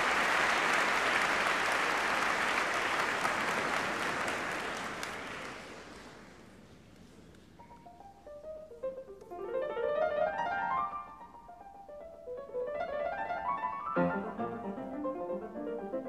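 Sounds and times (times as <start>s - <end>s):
audience applause: 0.0s - 6.4s
piano notes: 7.6s - 16.0s.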